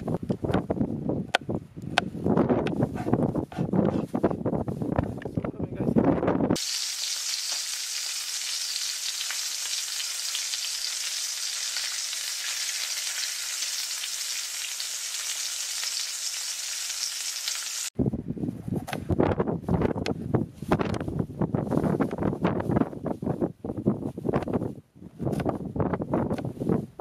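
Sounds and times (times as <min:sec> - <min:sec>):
food sizzling in hot oil: 0:06.6 - 0:17.9.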